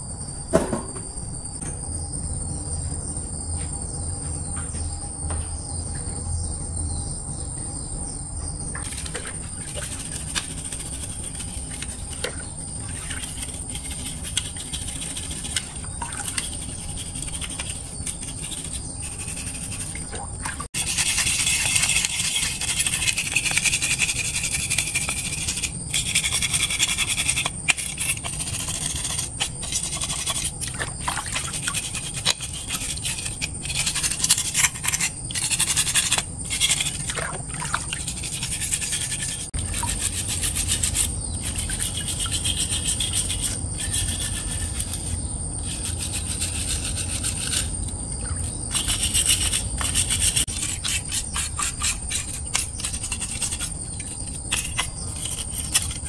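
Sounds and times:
wire brush scrubbing wet metal: 8.8 - 47.8, 48.4 - 56.0.

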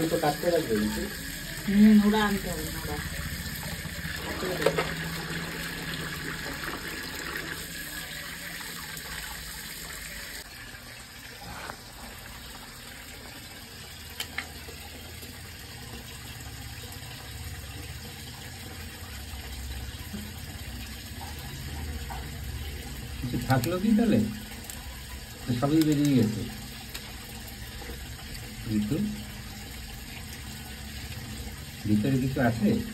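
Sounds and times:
tap water splashing into basin: 0.7 - 9.8, 19.9 - 28.1.

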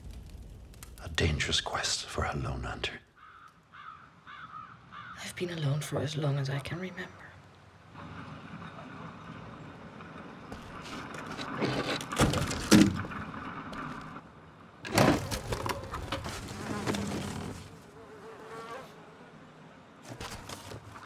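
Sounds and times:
wood and rubble clattering: 10.5 - 14.2, 14.8 - 17.8.

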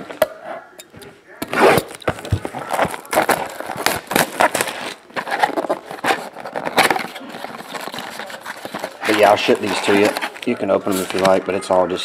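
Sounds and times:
plastic shrink wrap crinkling: 1.5 - 12.0
cardboard box handled: 1.8 - 11.4.

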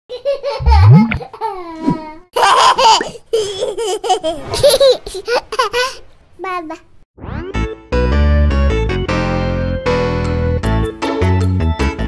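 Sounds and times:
baby laughing and giggling: 0.1 - 6.0.

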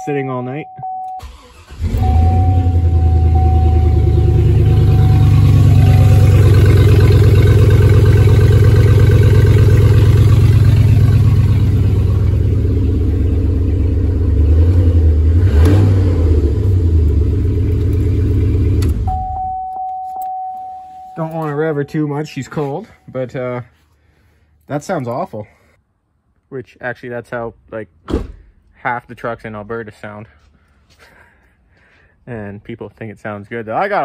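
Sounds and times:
car engine starting and idling: 0.8 - 22.7
engine revving: 1.2 - 19.2
door-open chime: 1.9 - 6.6, 19.1 - 23.0.

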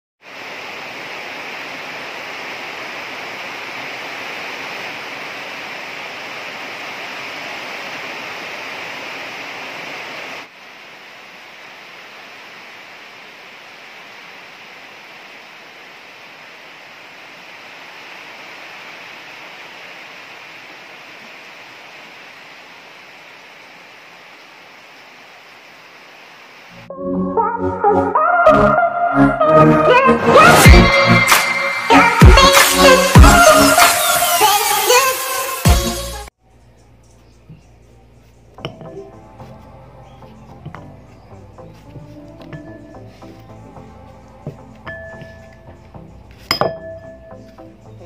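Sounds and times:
heavy rain with wind: 0.2 - 26.9, 29.4 - 36.4.

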